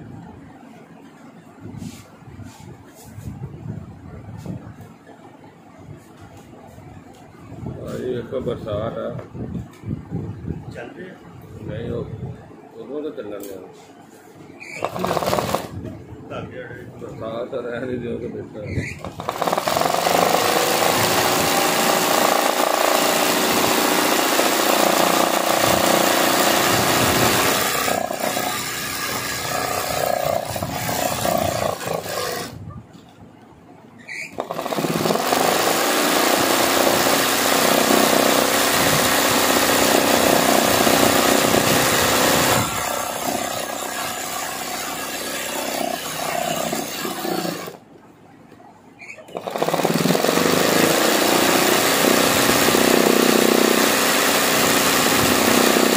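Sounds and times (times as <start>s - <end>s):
sewing machine running: 14.8s - 15.8s, 19.0s - 32.6s, 34.4s - 47.8s, 49.4s - 55.9s.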